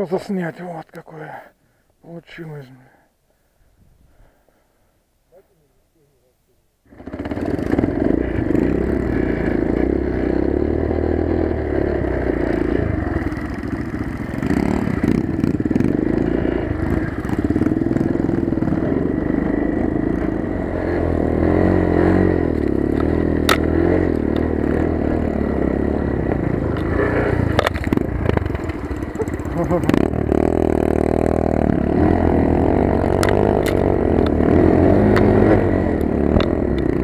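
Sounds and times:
motorcycle engine running: 0:06.9 - 0:37.0
bike clattering over rough ground: 0:33.0 - 0:34.4.

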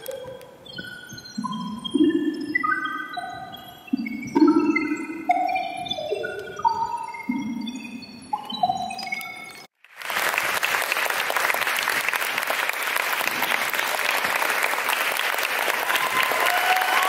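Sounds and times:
audience applause: 0:09.8 - 0:17.0.

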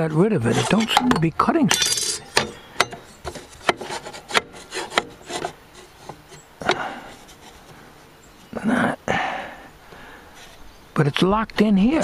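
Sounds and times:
metal scraping rub: 0:00.4 - 0:01.1.

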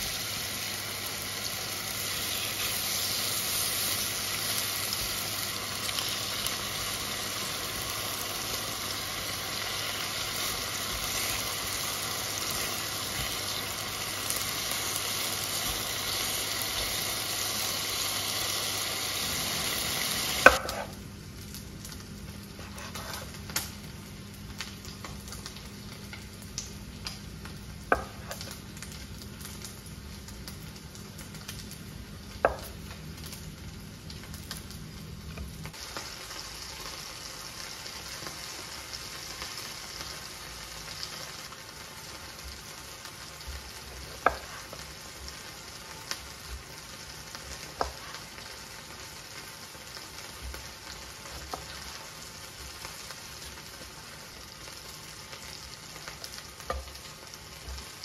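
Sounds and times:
food sizzling in a frying pan: 0:00.0 - 0:58.0.

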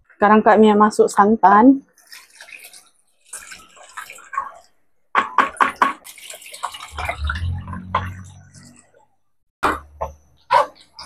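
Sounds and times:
liquid pouring and splashing: 0:01.9 - 0:09.1.

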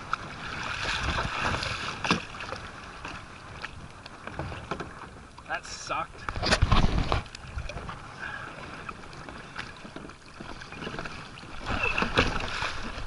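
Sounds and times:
water slapping plastic hull: 0:00.0 - 0:05.3, 0:06.2 - 0:08.0, 0:08.6 - 0:13.0
paddle strokes splashing water: 0:00.0 - 0:13.0
wind on microphone: 0:06.2 - 0:08.7.

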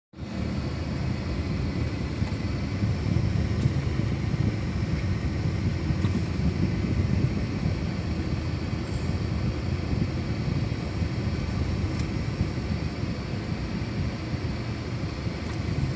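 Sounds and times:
car engine rumble: 0:00.2 - 0:15.9
road noise: 0:00.2 - 0:15.9.

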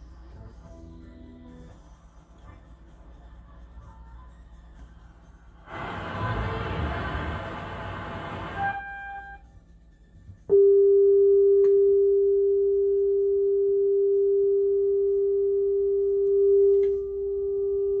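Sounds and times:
steady test tone: 0:05.7 - 0:09.4.

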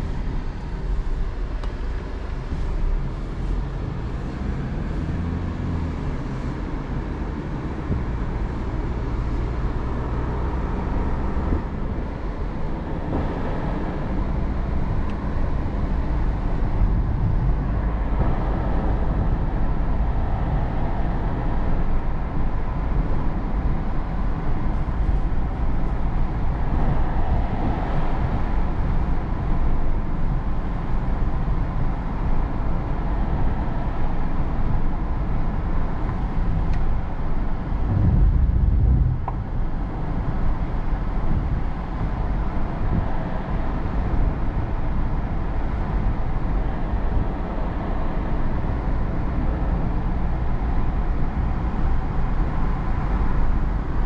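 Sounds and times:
engine hum: 0:00.0 - 0:54.0
tyre and road noise: 0:00.0 - 0:54.0
low rumble: 0:36.0 - 0:43.2.

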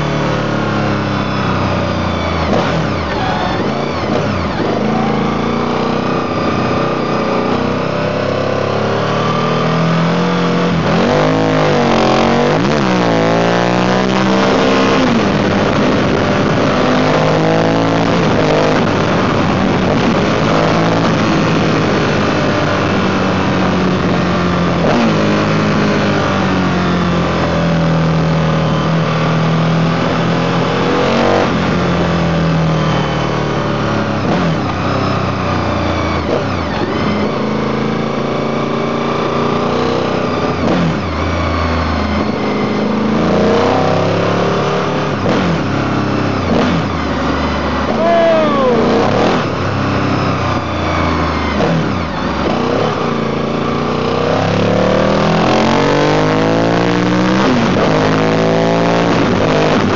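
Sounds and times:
motorcycle engine revving: 0:00.0 - 0:59.9
wind noise on microphone: 0:17.8 - 0:24.4.

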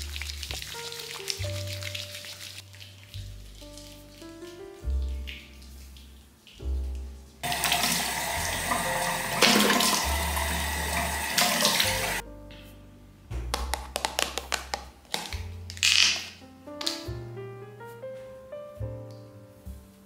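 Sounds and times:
sink tap running: 0:07.4 - 0:12.2.

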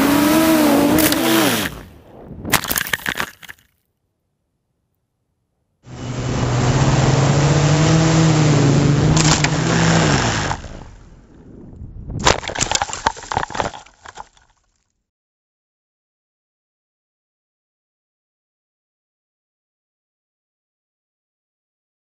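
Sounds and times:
quadcopter motors buzzing: 0:00.0 - 0:01.8, 0:05.9 - 0:10.9
quadcopter crashing and tumbling: 0:00.0 - 0:03.3, 0:05.9 - 0:11.0, 0:12.2 - 0:14.2.

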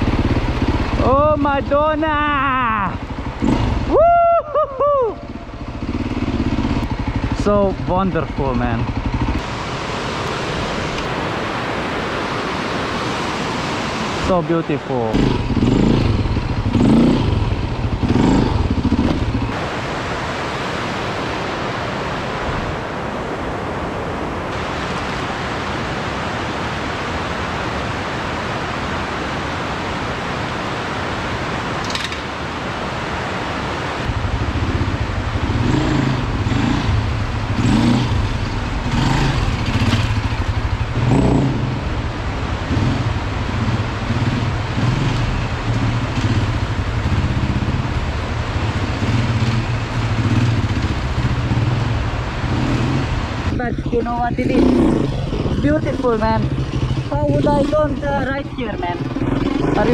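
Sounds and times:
steady rushing noise: 0:00.0 - 0:04.1, 0:04.8 - 0:59.9
motorcycle engine revving: 0:00.0 - 0:04.2, 0:05.1 - 0:19.9, 0:33.9 - 0:59.9.

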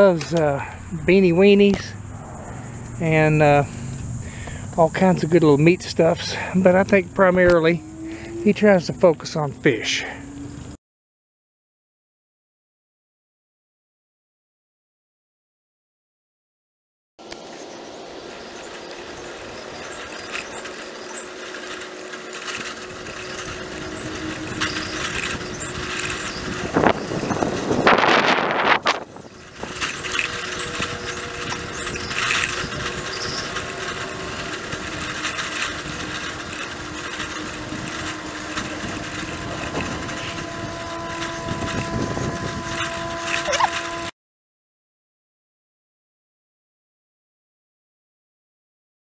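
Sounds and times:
bicycle tyres on pavement: 0:00.0 - 0:10.8, 0:17.2 - 0:44.1
wind noise: 0:22.6 - 0:44.1.

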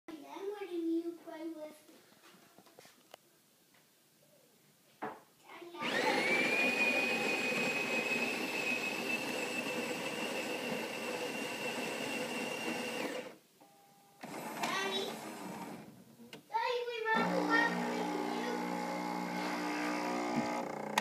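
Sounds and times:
coffee grinder motor whine: 0:05.8 - 0:13.4, 0:14.2 - 0:15.8, 0:17.2 - 0:21.0.

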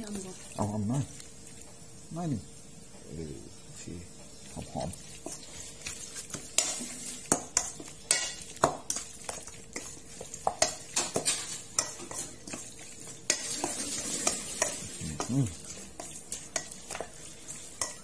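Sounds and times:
spoon stirring wet meat: 0:00.0 - 0:01.8, 0:04.3 - 0:18.0
spoon clinking on metal bowl: 0:17.7 - 0:18.0.

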